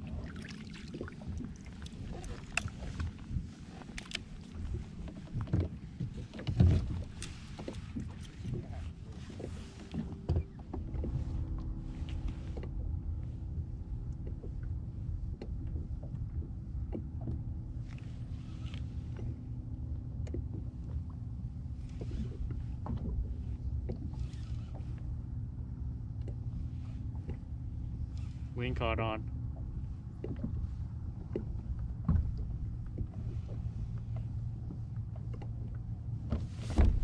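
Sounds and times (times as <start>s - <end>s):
steady low rumble: 0.0s - 24.2s, 24.8s - 37.0s.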